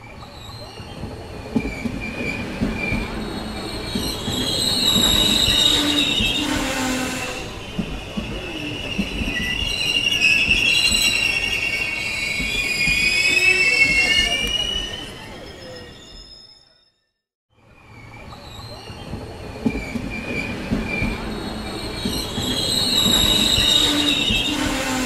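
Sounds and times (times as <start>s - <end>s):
train brakes squealing: 0.0s - 25.0s
low train rumble: 17.6s - 25.0s.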